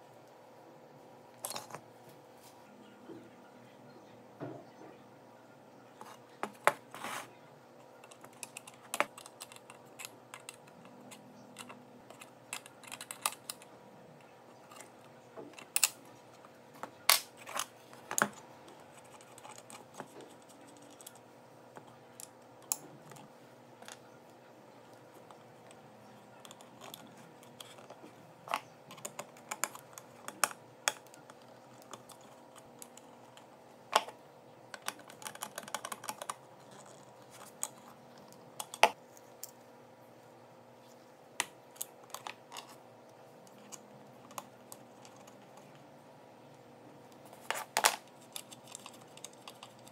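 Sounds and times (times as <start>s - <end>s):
faint steady hum: 0.0s - 49.9s
wire terminals clicking and tapping: 8.0s - 13.7s, 25.3s - 39.6s.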